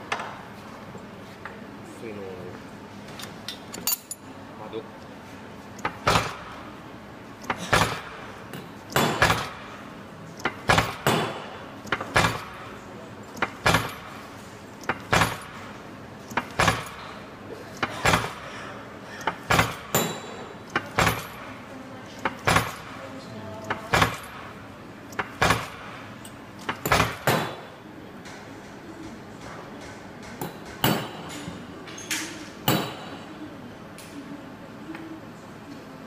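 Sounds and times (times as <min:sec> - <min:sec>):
stamping press metallic clack: 0:07.4 - 0:09.6, 0:10.4 - 0:12.6, 0:13.4 - 0:14.2, 0:14.8 - 0:15.6, 0:16.3 - 0:17.1, 0:19.2 - 0:21.4, 0:25.1 - 0:26.0, 0:26.6 - 0:27.7.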